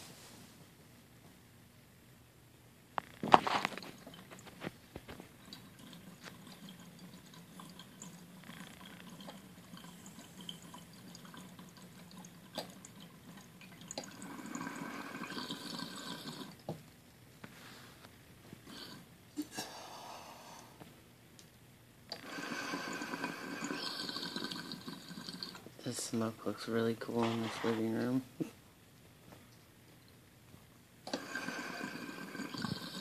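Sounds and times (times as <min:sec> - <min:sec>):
water bubbling in glass pipe: 0:05.5 - 0:16.7, 0:22.2 - 0:25.6, 0:31.1 - 0:33.0.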